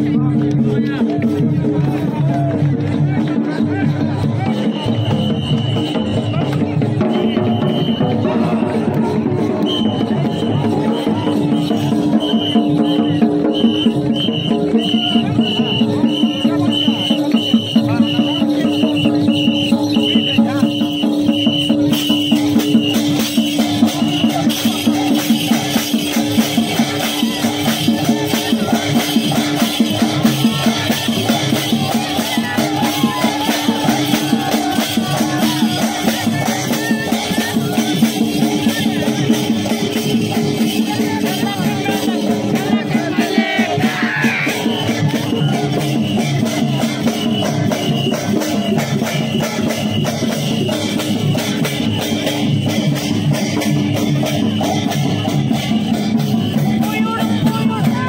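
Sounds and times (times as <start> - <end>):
barrel drum beaten fast: 0.0 - 58.0.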